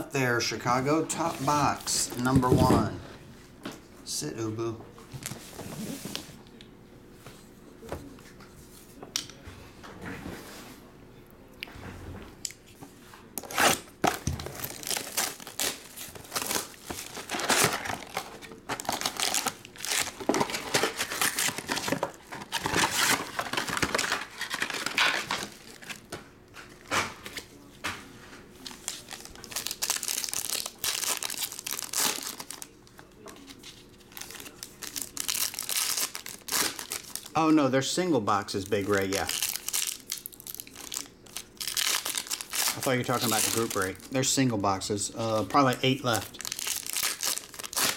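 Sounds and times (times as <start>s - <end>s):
plastic and foil crinkling: 13.5s - 26.1s, 28.6s - 37.4s, 38.5s - 47.9s.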